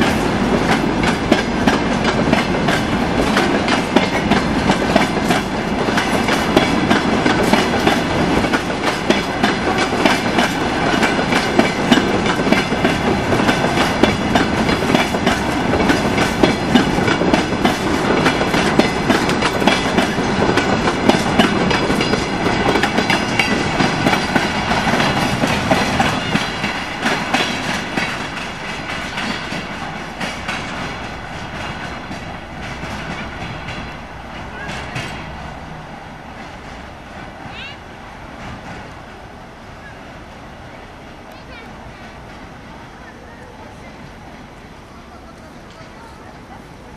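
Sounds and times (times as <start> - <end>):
train wheels clattering over rail joints: 0.0 - 37.7.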